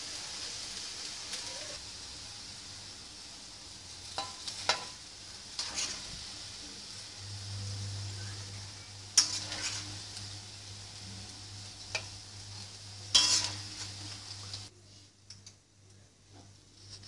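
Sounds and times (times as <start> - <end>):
vegetables sizzling in a wok: 0.0 - 14.7
metal spatula scraping a pan: 4.0 - 6.9, 7.8 - 14.7.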